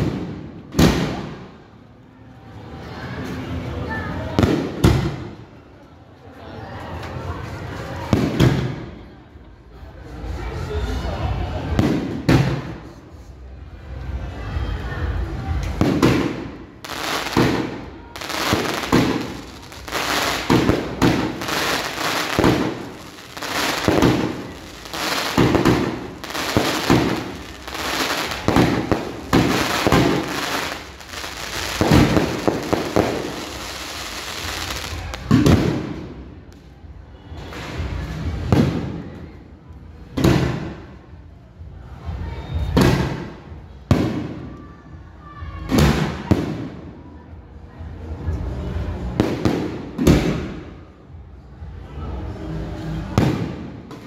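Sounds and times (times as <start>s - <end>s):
fireworks launching and bursting: 0.0s - 1.5s, 15.7s - 36.2s, 53.2s - 53.8s.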